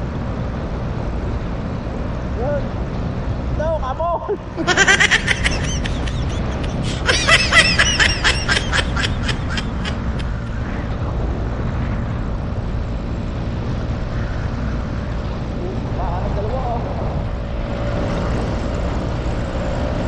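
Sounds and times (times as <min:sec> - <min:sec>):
man laughing: 0:04.0 - 0:10.6.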